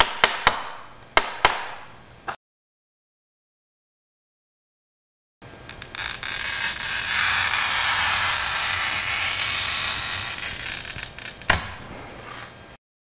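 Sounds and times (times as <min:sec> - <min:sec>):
glass scribe scratching: 0:05.7 - 0:11.5.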